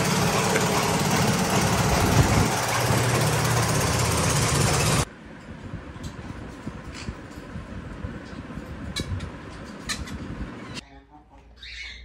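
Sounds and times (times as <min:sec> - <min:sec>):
small engine running: 0:00.0 - 0:05.1.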